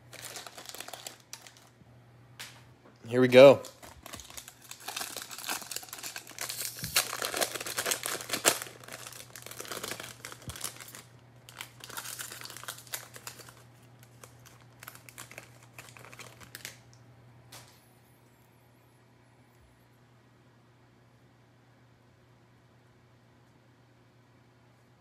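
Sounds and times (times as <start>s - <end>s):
foil wrapper tearing and crinkling: 0.0s - 1.7s, 3.6s - 16.9s
cards sliding out of wrapper: 3.9s - 11.0s.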